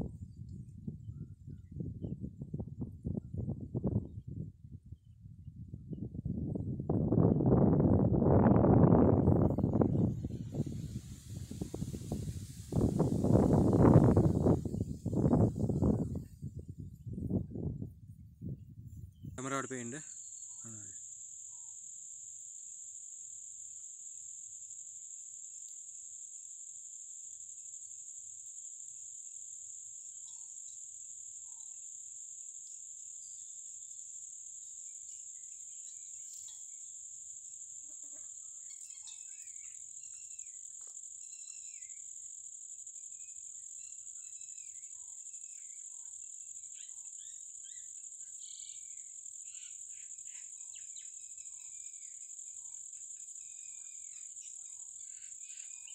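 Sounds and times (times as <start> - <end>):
high-pitched insect chorus: 6.0 - 17.8, 19.1 - 55.9.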